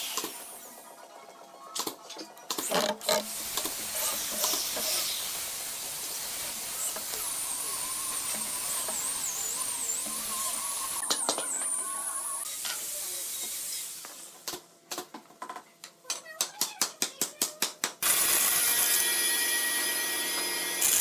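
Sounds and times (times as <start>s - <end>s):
electric drill boring into wood: 3.0s - 12.4s, 18.0s - 21.0s.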